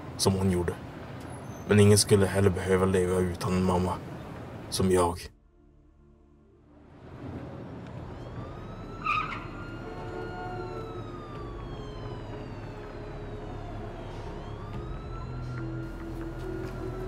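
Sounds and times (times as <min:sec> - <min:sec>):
siren wailing: 0:06.6 - 0:17.0.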